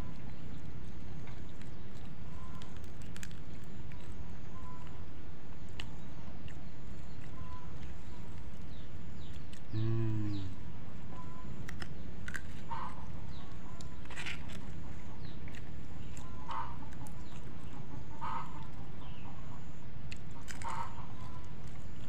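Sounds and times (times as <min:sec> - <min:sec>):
faint high bird chirps: 0:04.5 - 0:05.0, 0:07.0 - 0:11.6
chickens clucking: 0:16.3 - 0:19.8.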